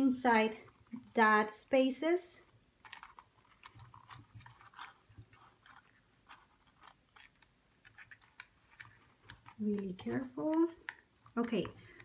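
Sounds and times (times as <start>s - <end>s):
small clicks and scratches: 0.5s - 1.2s, 2.4s - 12.0s
paper rustling: 2.4s - 12.0s.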